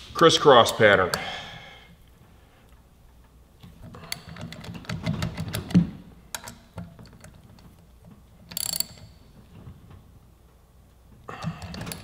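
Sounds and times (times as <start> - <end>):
socket ratchet clicking: 3.7 - 9.2.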